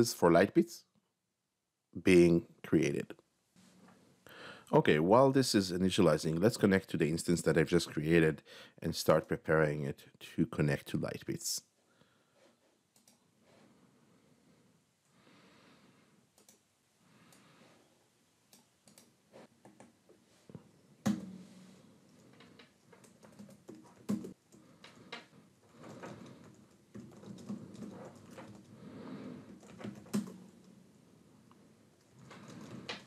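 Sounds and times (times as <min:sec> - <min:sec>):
computer keyboard typing: 0:22.2 - 0:28.8, 0:29.5 - 0:30.6.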